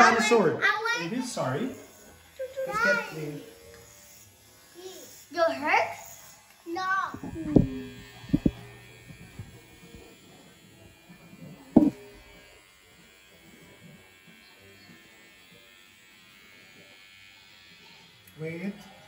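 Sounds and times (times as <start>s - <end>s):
hair clippers buzzing: 1.6s - 19.0s
loud thump: 11.8s - 12.0s.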